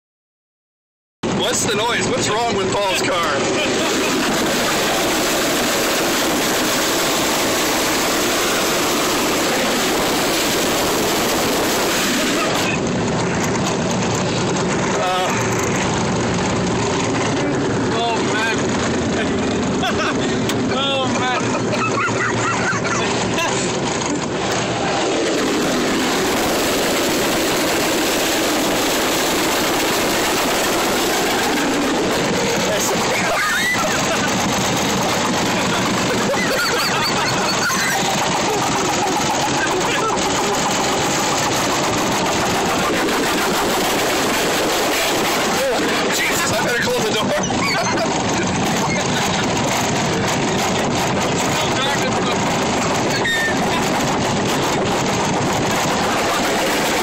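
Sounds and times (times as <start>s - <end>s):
wind rushing at car window: 1.3s - 57.0s
tyre noise on wet road: 2.8s - 57.0s
wind buffeting microphone: 38.1s - 57.0s.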